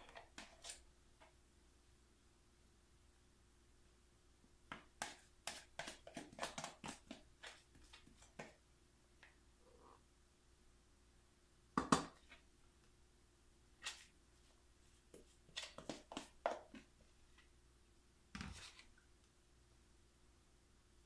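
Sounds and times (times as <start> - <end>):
spoon scraping plastic pitcher: 0.0 - 0.8, 5.0 - 8.5.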